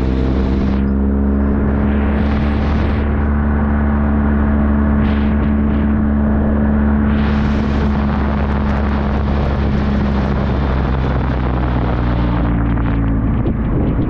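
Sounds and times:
motorcycle engine cruising: 0.0s - 14.0s
wind rush on microphone: 0.0s - 14.0s.

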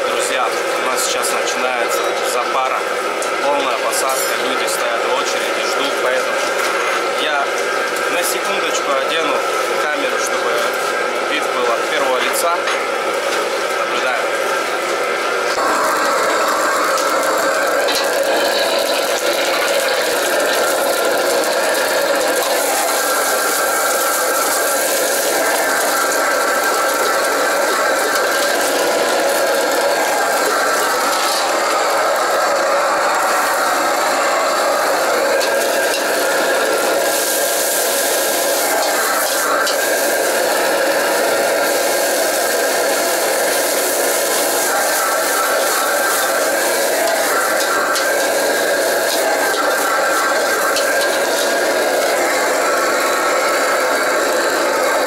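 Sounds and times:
gas burner rushing: 0.0s - 55.0s
kitchen extraction fan: 0.0s - 55.0s
ladle scraping and clanking wok: 15.6s - 31.6s, 43.1s - 53.1s.

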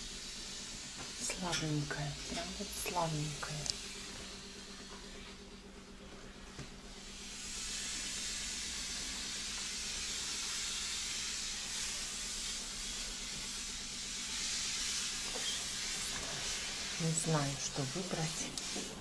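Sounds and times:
steady hiss: 7.0s - 19.0s.

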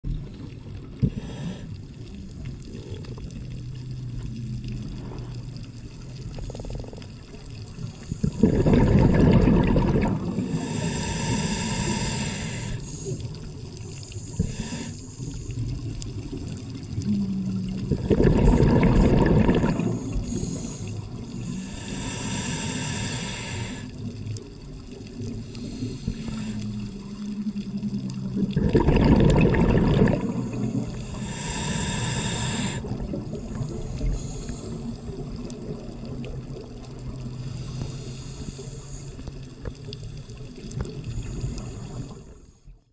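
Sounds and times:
exhaled bubbles rushing: 2.4s - 10.8s, 15.2s - 22.0s, 23.6s - 37.4s
air hissing through regulator: 10.3s - 15.4s, 19.6s - 24.0s, 25.4s - 27.0s, 30.2s - 33.0s.

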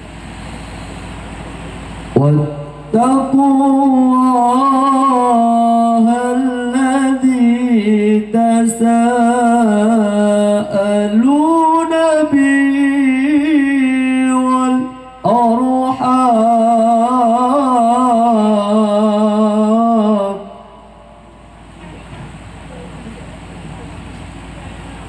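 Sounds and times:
person reciting melodically: 2.1s - 21.4s.

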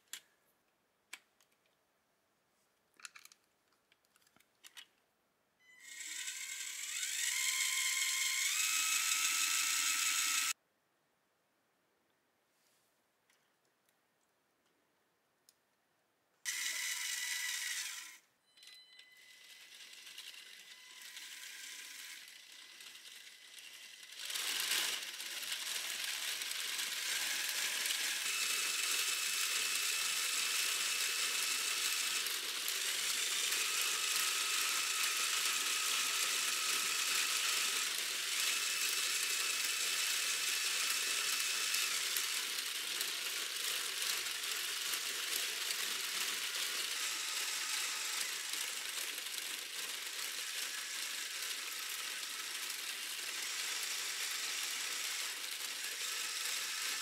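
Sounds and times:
plastic mechanism clattering: 3.0s - 4.9s.

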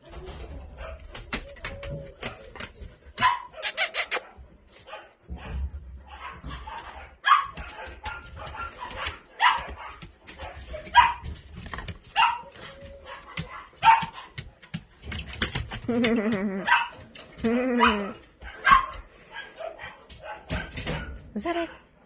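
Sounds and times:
dogs barking: 3.1s - 14.7s, 16.6s - 17.2s, 17.8s - 21.9s
person's voice: 21.4s - 21.8s.

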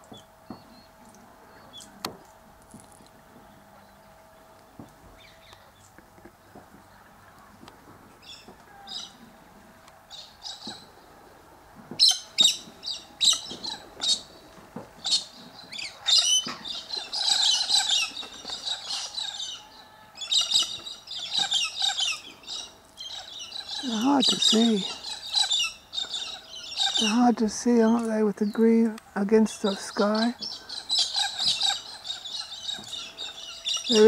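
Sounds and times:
faint steady hum: 0.0s - 34.0s
parrots calling: 12.0s - 14.4s, 15.0s - 28.1s, 29.6s - 34.0s
parrots chattering: 15.0s - 27.3s, 29.7s - 34.0s.

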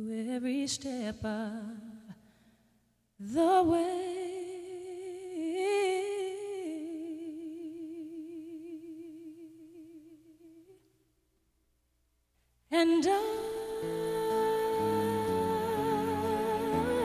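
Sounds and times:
woman singing a long note: 12.8s - 17.0s.

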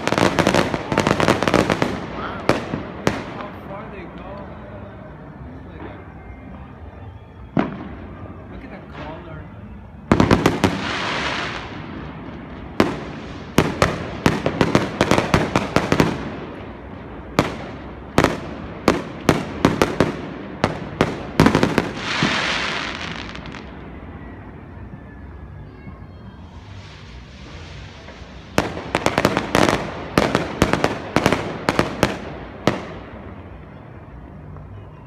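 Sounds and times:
fireworks bangs: 0.0s - 4.5s, 7.5s - 24.6s, 26.6s - 33.8s
fireworks hiss: 10.4s - 17.8s, 18.6s - 23.7s, 26.4s - 31.6s.

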